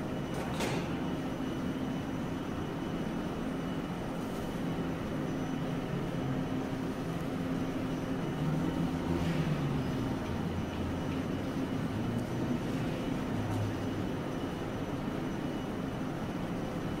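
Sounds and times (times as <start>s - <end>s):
streetcar low hum: 0.0s - 17.0s.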